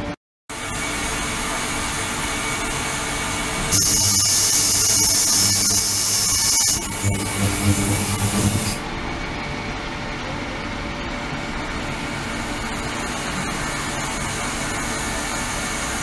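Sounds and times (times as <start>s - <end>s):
water hissing in cleaning tank: 3.7s - 8.8s
loud humming: 3.8s - 8.8s.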